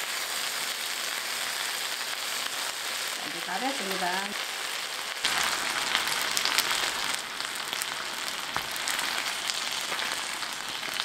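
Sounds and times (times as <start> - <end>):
fish sizzling in oil: 0.0 - 11.0
small crackling pops: 5.1 - 11.0.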